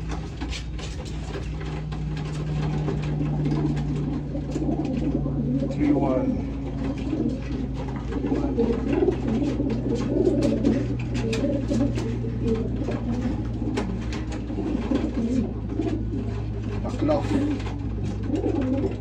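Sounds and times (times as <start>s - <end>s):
pigeons cooing: 0.0s - 19.0s
steady low hum: 0.0s - 19.0s.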